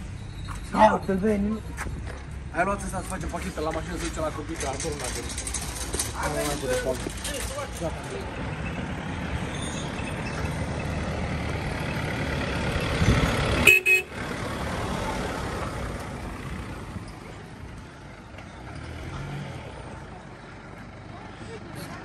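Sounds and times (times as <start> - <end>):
car engine passing by: 8.1 - 22.0
car horn toot: 13.6 - 14.1.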